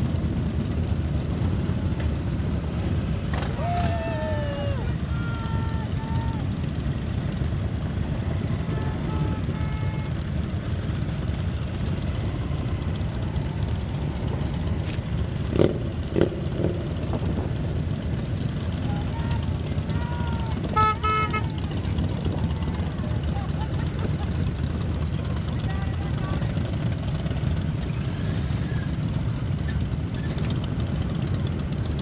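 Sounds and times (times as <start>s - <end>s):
motorcycle engines rumbling: 0.0s - 32.0s
vehicle horn toot: 8.4s - 10.4s, 20.6s - 22.1s.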